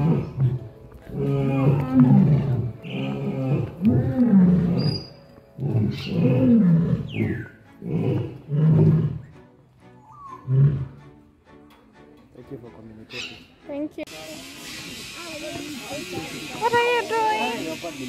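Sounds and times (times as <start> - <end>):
lion roaring: 0.0 - 9.3.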